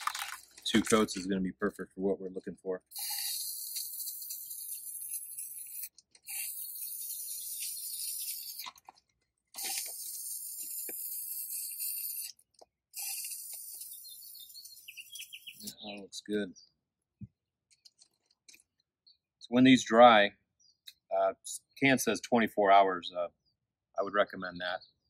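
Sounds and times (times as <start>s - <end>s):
spray paint can hissing: 2.9s - 8.8s, 9.6s - 15.7s.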